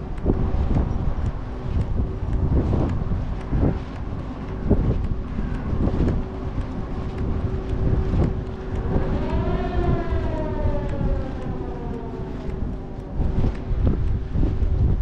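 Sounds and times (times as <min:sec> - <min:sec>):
steady low hum: 0:00.0 - 0:15.0
wind buffeting microphone: 0:00.0 - 0:15.0
long horn-like tone: 0:06.8 - 0:13.8.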